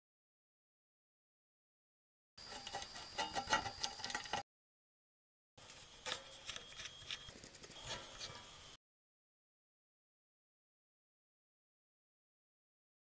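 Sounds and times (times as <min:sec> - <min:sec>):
screwdriver clicking on metal: 0:06.0 - 0:08.4.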